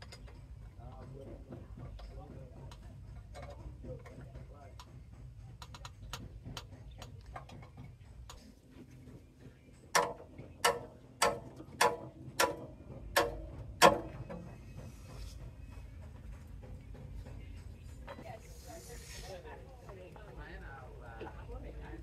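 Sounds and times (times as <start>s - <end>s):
metal-on-metal knocks: 9.9s - 14.6s.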